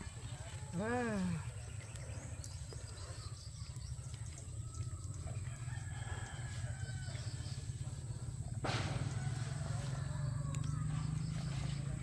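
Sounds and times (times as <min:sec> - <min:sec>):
rooster crowing faintly: 0:08.6 - 0:12.0.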